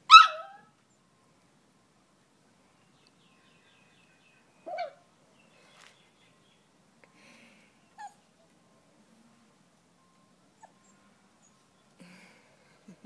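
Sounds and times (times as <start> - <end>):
puppy whimpering: 8.0 - 8.3, 10.6 - 11.0
faint bird chirps: 10.0 - 12.4.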